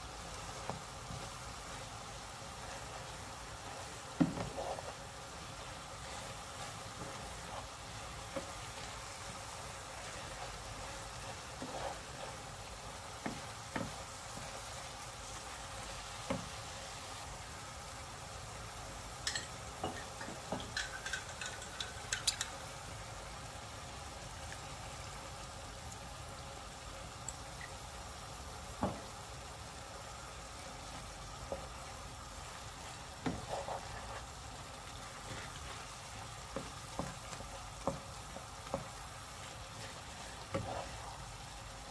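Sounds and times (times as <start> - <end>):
food sizzling in a pan: 0.0 - 41.9
wooden spatula scraping a pan: 0.4 - 17.2, 30.5 - 41.9.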